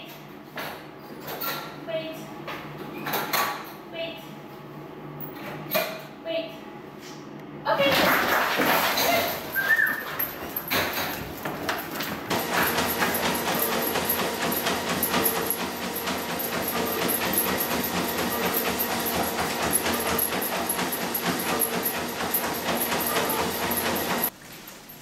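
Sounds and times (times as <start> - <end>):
treadmill humming: 7.7 - 25.0
dog paws tapping on belt: 8.7 - 24.3.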